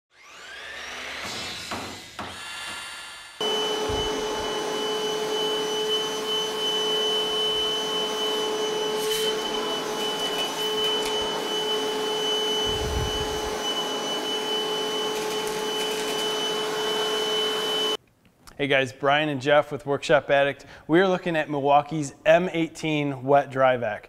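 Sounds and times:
wet dry vac running: 3.4s - 18.0s.

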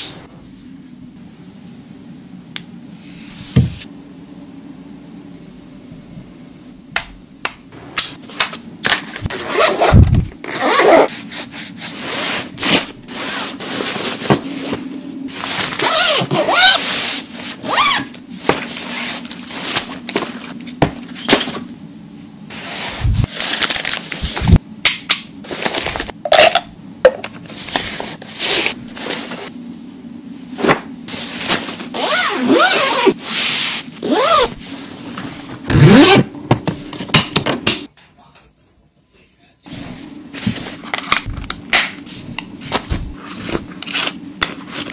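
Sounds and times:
zipper pulls: 9.2s - 11.1s, 15.6s - 16.9s, 31.9s - 33.2s, 34.0s - 34.6s, 35.7s - 36.3s.

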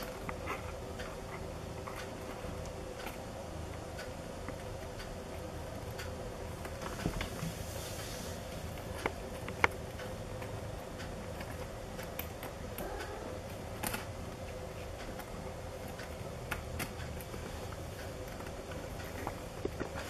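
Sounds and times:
low room hum: 0.0s - 20.0s
small clicks and ticks: 8.6s - 20.0s.

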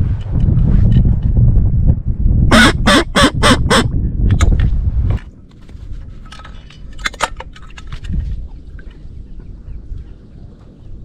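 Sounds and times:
heavy low rumble: 0.0s - 7.4s
harsh waterfowl calls: 2.5s - 3.9s.

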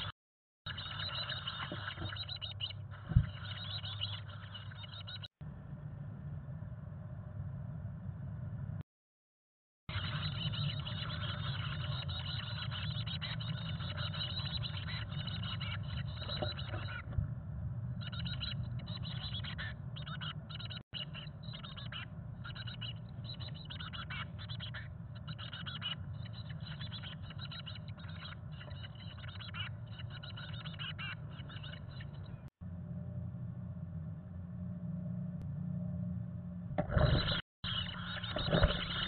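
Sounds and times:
nestlings begging calls: 0.7s - 5.3s, 9.9s - 17.1s, 18.0s - 32.5s, 37.0s - 39.0s
steady low hum: 0.7s - 8.8s, 9.9s - 39.0s.

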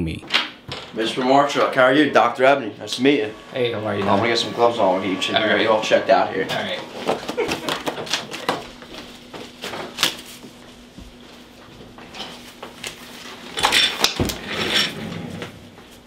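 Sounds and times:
gloves rustling and snapping: 12.0s - 14.3s.

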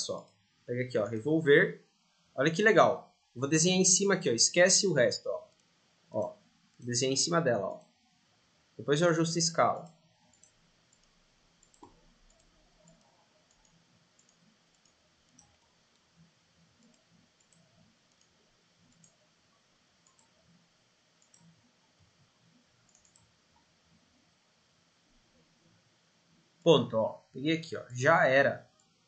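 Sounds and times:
computer mouse clicks: 5.5s - 6.9s, 9.8s - 19.3s, 20.0s - 20.6s, 21.2s - 21.7s, 22.8s - 23.7s.

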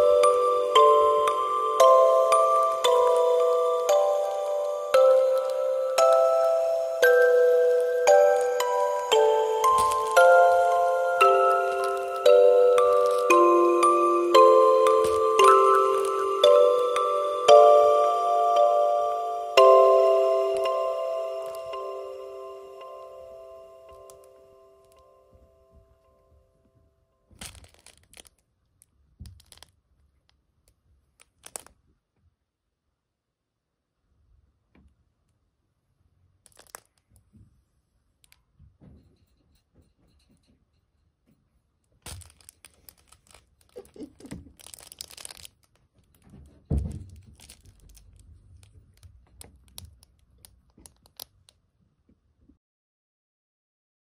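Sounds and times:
held chime note: 0.0s - 25.7s
cloth toy crinkling: 8.1s - 17.3s, 27.3s - 29.8s, 31.0s - 31.8s, 36.4s - 37.1s, 42.0s - 51.5s.

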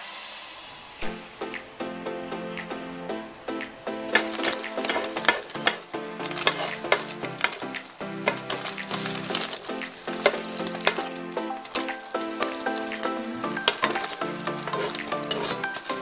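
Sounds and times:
background music: 1.0s - 16.0s
egg sizzling in hot oil: 4.1s - 16.0s
spatula scraping a pan: 4.1s - 16.0s.

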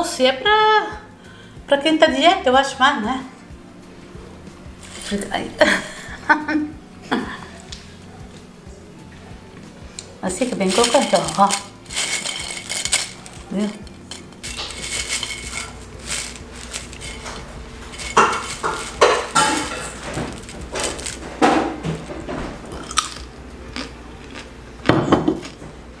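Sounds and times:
crunchy chewing: 10.5s - 25.6s.

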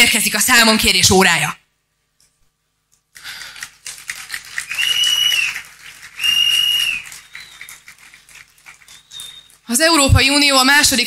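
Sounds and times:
crowd applauding: 3.2s - 9.7s
shrill whistles: 4.6s - 8.1s, 8.7s - 9.7s.

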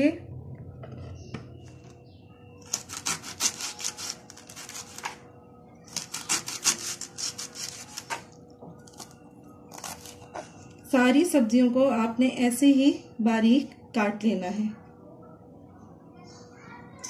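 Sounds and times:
knife slicing cabbage on cutting board: 2.6s - 5.2s, 5.9s - 8.3s.

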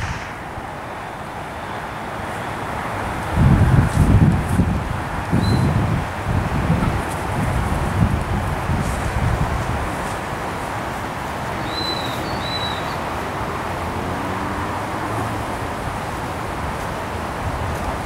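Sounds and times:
wind noise on microphone: 0.0s - 1.8s, 3.1s - 11.6s.

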